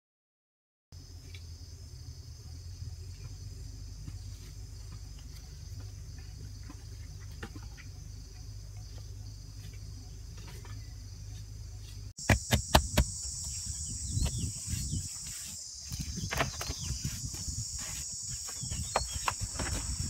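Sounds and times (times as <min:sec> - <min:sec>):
insects chirring: 0:01.0 - 0:20.0
hands scraping loose dirt: 0:10.4 - 0:20.0
sharp knocks: 0:12.2 - 0:13.2.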